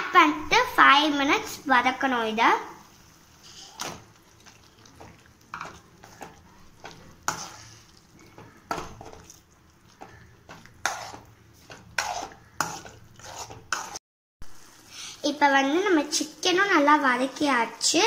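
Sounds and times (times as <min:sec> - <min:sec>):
food sizzling in oil: 0:00.6 - 0:18.0
metal spoon scraping a pan: 0:03.4 - 0:14.0.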